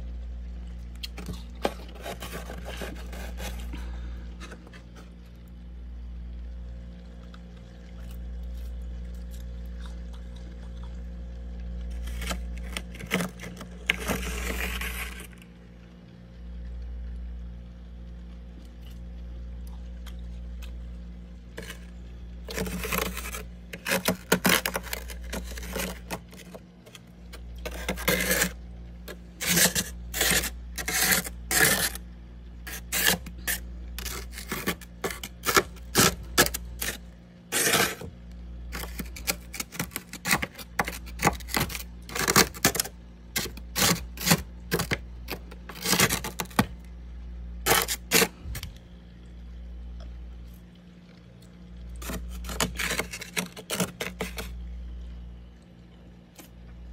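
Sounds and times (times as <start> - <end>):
steady low hum: 0.0 - 56.9
fingernails scraping freezer frost: 1.1 - 5.1, 11.9 - 15.5, 21.5 - 32.0, 32.6 - 46.8, 47.6 - 48.8, 52.0 - 54.6.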